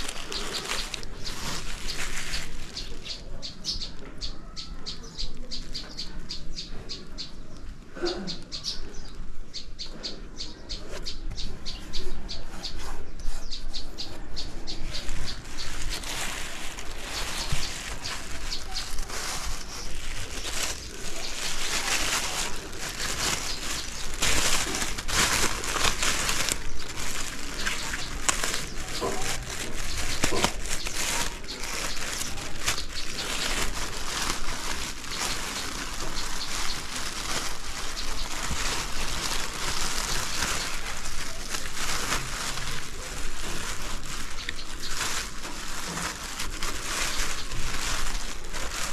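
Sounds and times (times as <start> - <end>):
plastic bag crinkling: 0.0 - 4.1, 14.7 - 48.9.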